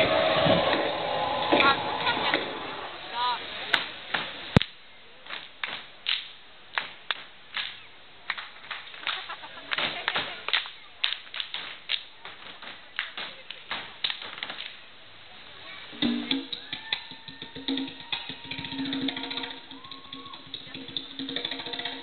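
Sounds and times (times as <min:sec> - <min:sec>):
sharp hand claps: 0:04.6 - 0:14.8.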